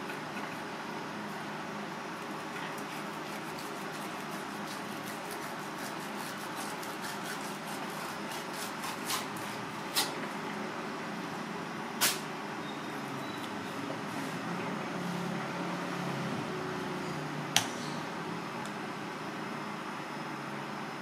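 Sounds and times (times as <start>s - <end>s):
knife scraping cutting board: 2.6s - 10.2s.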